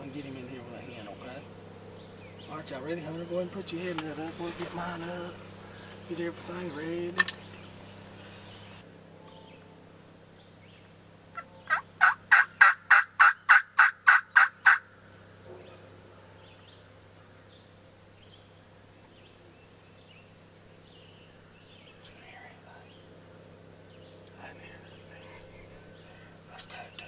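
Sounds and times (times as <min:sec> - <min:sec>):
small birds chirping: 0:00.0 - 0:27.0
turkey call yelps: 0:11.3 - 0:14.9.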